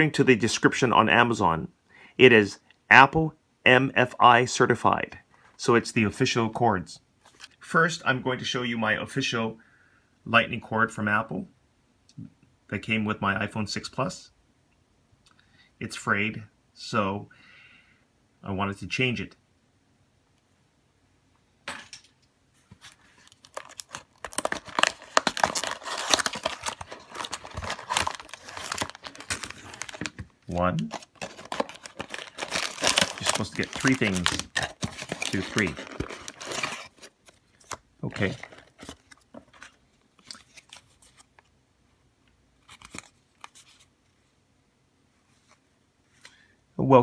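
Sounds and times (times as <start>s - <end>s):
packaging rustle: 22.7s - 41.3s
packaging crinkling: 22.8s - 41.2s
paperboard box tearing: 23.5s - 30.1s, 30.9s - 37.1s.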